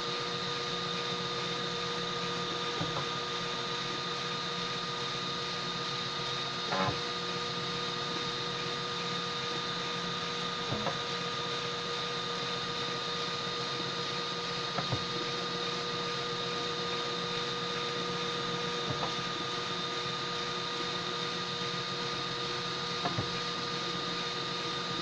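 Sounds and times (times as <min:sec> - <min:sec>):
printer mechanical hum and hiss: 0:00.0 - 0:25.0
motor chirps: 0:10.6 - 0:11.2.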